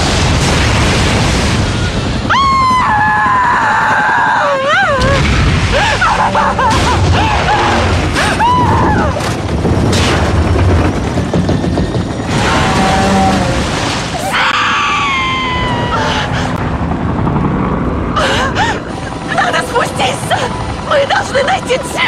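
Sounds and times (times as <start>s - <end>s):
explosion rumble and blasts: 0.0s - 19.2s
woman screaming: 2.3s - 9.2s, 14.2s - 16.4s.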